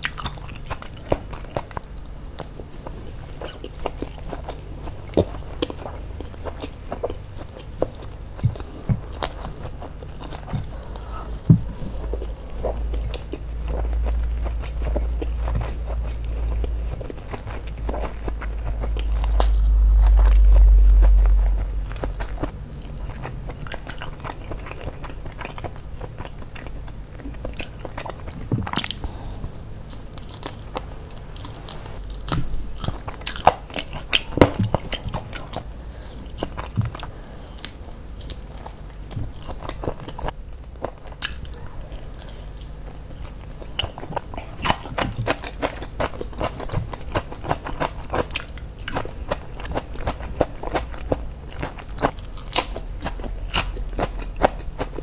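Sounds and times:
chewing crispy fried food: 0:00.0 - 0:55.0
deep low rumble: 0:01.8 - 0:40.3.

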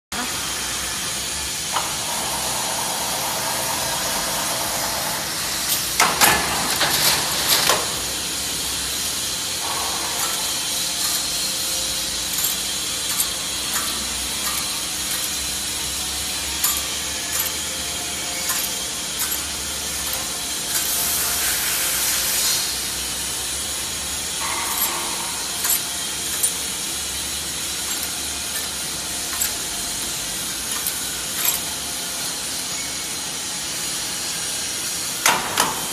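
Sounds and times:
machine hissing: 0:00.2 - 0:35.9
metallic clicks and clacks: 0:09.6 - 0:16.0, 0:16.6 - 0:17.7, 0:18.4 - 0:21.4, 0:24.4 - 0:26.8, 0:27.8 - 0:31.7.

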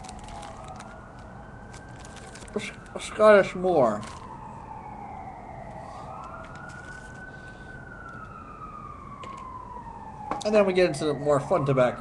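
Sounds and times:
siren wailing: 0:00.0 - 0:12.0.

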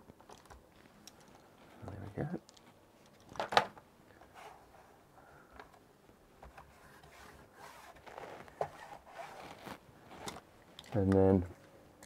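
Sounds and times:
hands scraping and rustling: 0:06.4 - 0:10.4.

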